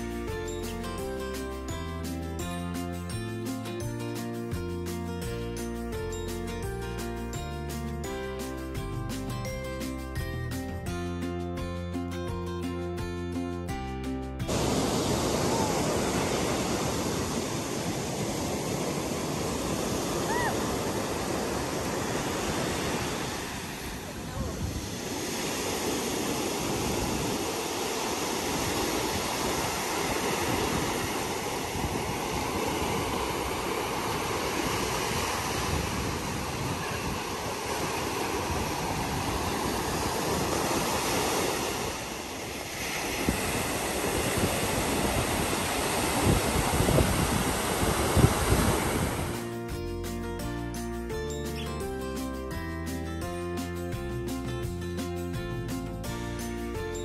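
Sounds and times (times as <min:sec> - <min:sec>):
waves breaking on a sandy beach: 0:14.5 - 0:49.8.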